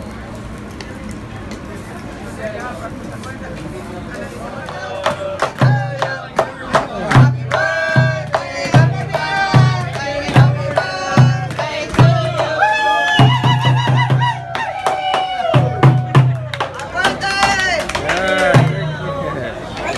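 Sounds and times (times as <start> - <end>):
voices singing together: 4.6 - 14.7
hand clapping: 4.6 - 18.8
barrel drum beating: 4.7 - 12.6, 13.2 - 17.2, 18.5 - 19.0.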